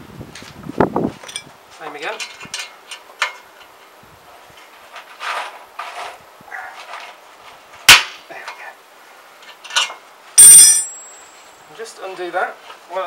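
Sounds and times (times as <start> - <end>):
sharp metal click: 10.4 - 11.2.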